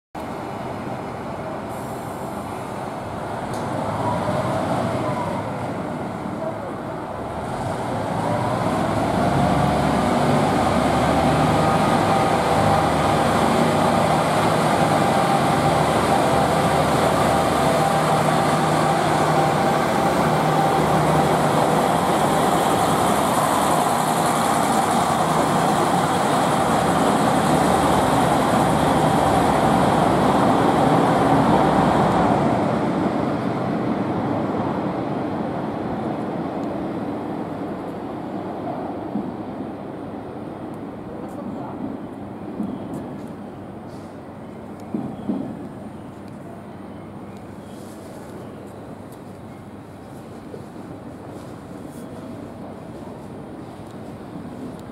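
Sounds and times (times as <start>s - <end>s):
diesel railcar passing: 0.2s - 54.9s
diesel engine rumble and whine: 0.4s - 33.7s.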